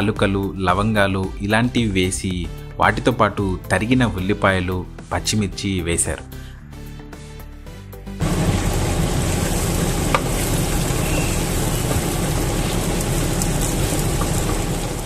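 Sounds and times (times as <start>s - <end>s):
onions sizzling in hot fat: 8.2s - 15.0s
wooden spatula stirring: 8.5s - 15.0s.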